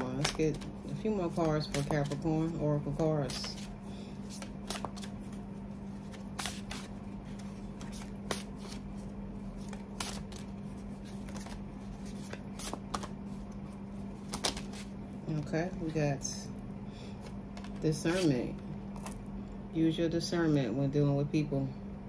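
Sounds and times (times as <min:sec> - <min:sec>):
cards being shuffled: 0:00.0 - 0:15.0, 0:17.1 - 0:19.2.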